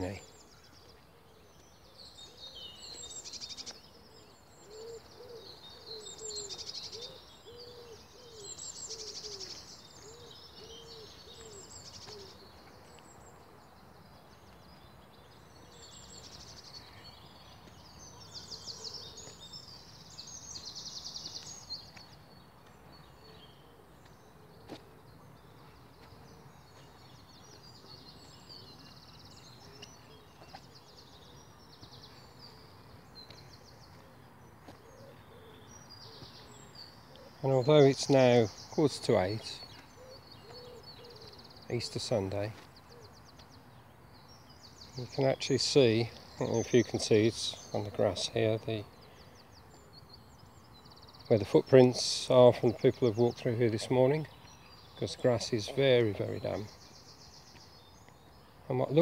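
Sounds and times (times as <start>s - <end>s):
low hooting bird call: 0.0s - 14.5s, 22.9s - 43.4s
songbirds singing: 0.0s - 59.0s.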